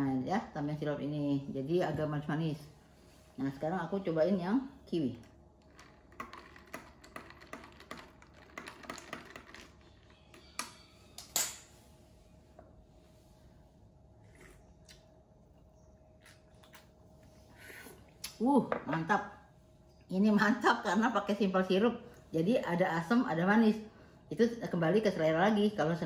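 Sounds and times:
faint steady hum: 0:00.0 - 0:26.0
spoon stirring ice cubes in glass: 0:05.7 - 0:11.3.

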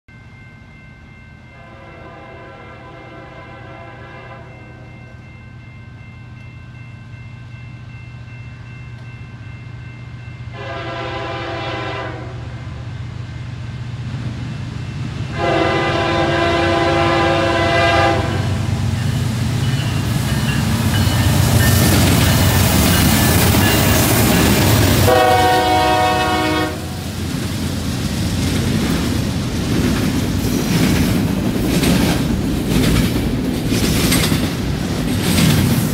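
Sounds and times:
diesel locomotive engine hum: 0:00.1 - 0:35.9
locomotive air horn: 0:01.6 - 0:04.8, 0:10.5 - 0:12.8, 0:15.3 - 0:18.7, 0:24.3 - 0:27.1
train wheels on rails: 0:04.4 - 0:35.9.

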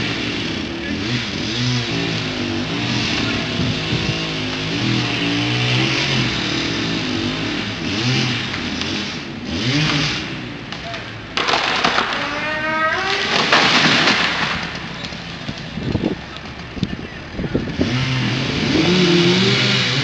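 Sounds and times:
two-stroke chainsaw engine revving: 0:00.0 - 0:16.7, 0:17.5 - 0:20.0.

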